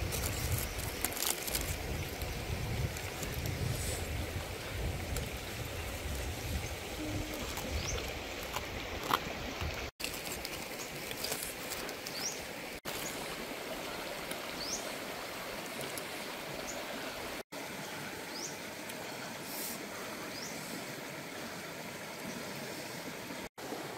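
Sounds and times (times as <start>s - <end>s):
banana leaf crackling: 0.0s - 3.6s, 7.0s - 12.2s
steady outdoor hiss: 0.0s - 23.9s.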